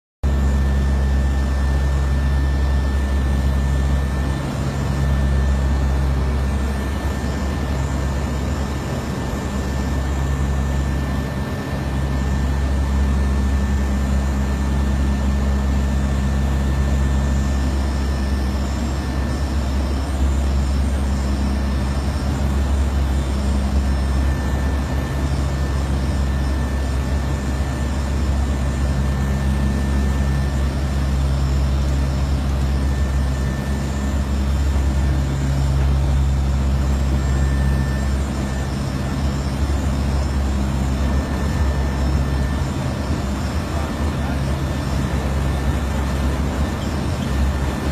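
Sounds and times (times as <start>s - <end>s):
turboprop engines droning: 0.2s - 47.9s
thin high whine: 0.3s - 47.9s.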